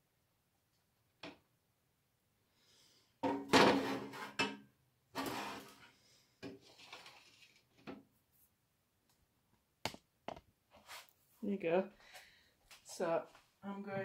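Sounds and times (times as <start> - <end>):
basket scraping on glass hob: 3.4 - 5.9, 6.5 - 7.8.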